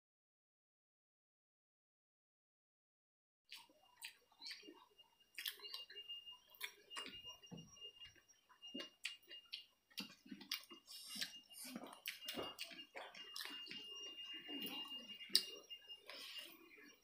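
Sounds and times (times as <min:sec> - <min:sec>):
wet chewing and lip smacks: 0:03.5 - 0:07.2, 0:08.7 - 0:16.6
faint steady high whine: 0:03.6 - 0:17.0.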